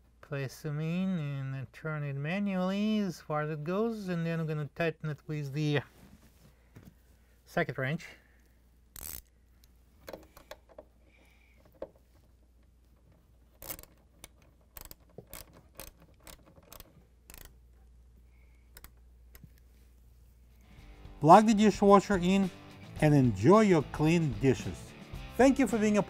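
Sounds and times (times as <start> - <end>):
socket wrench clicks: 13.6 - 17.6.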